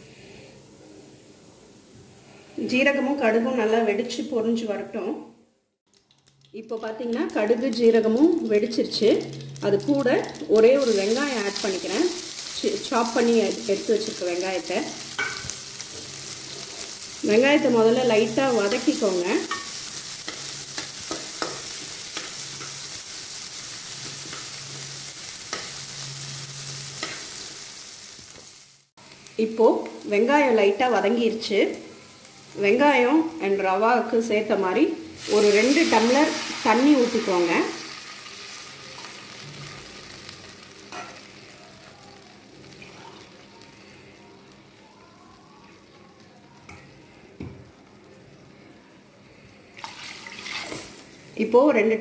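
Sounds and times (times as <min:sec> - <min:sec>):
onion sizzling in oil: 0:00.0 - 0:04.8, 0:05.9 - 0:52.0.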